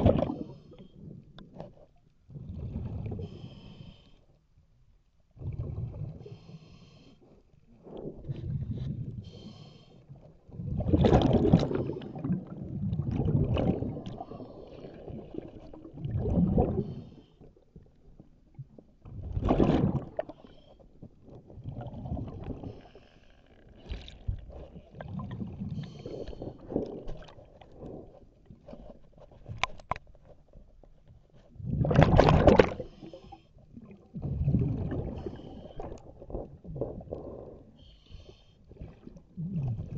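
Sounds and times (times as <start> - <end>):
hissing regulator inhales: 9.2 - 10.0.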